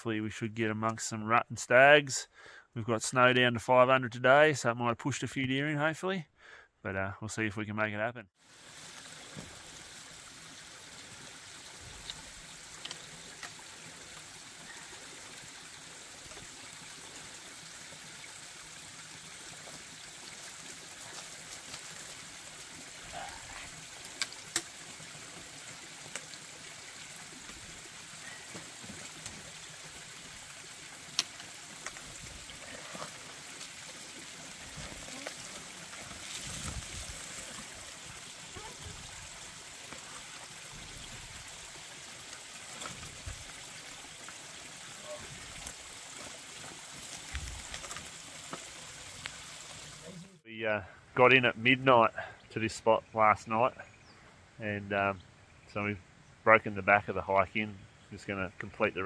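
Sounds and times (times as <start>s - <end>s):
trekking poles and boots clicking on rock: 24.0s - 24.9s, 28.3s - 29.5s, 31.0s - 34.0s, 34.6s - 37.6s, 45.4s - 49.4s.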